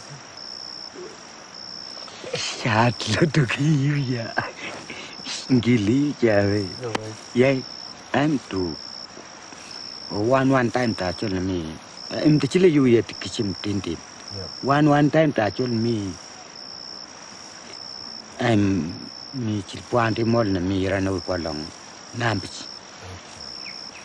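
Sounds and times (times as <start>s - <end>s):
insect chirping: 0.0s - 24.0s
man talking: 2.3s - 4.6s, 5.3s - 8.8s, 10.1s - 16.2s, 18.4s - 23.6s.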